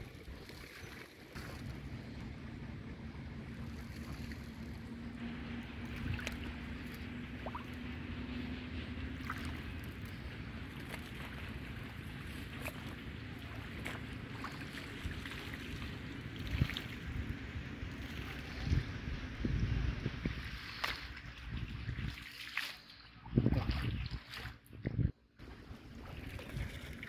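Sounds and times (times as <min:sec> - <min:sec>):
wind rumbling on microphone: 0:00.0 - 0:27.0.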